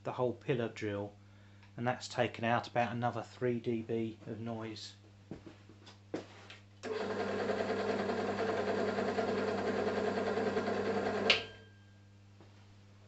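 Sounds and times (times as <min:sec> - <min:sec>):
drill motor hum and belt whir: 0:06.8 - 0:11.4.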